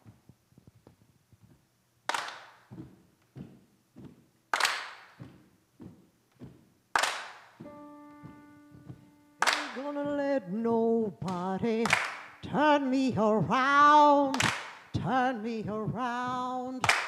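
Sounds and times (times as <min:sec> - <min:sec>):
woman singing: 0:09.4 - 0:17.0.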